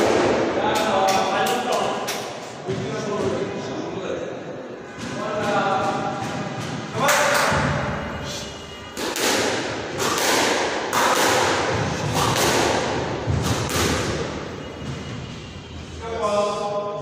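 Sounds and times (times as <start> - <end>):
squash ball smacks echoing: 0.0 - 2.4, 5.0 - 7.9, 8.9 - 14.4.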